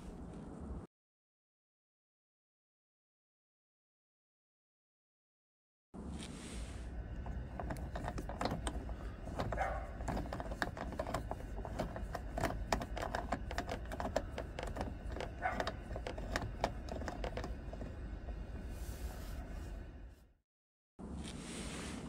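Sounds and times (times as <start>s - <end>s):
low steady rumble: 6.0s - 20.3s.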